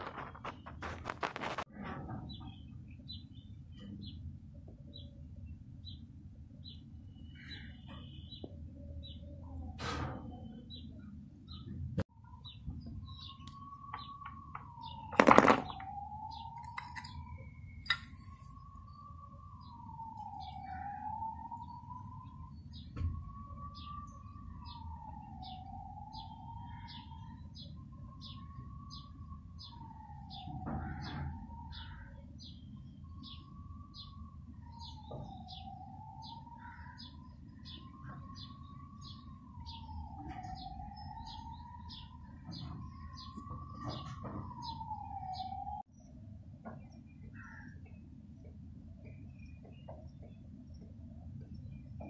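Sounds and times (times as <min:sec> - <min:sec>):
wavering tone: 0:12.2 - 0:32.2.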